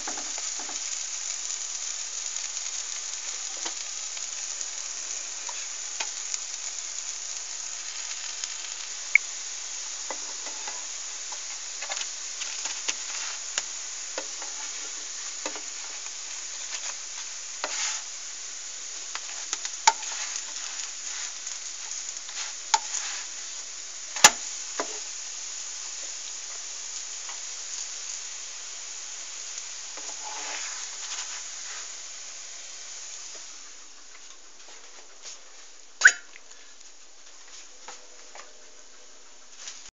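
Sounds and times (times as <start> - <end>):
crepe sizzling in frying pan: 0.0 - 39.9
spatula scraping pan: 17.6 - 18.1, 19.3 - 21.3, 30.0 - 31.8.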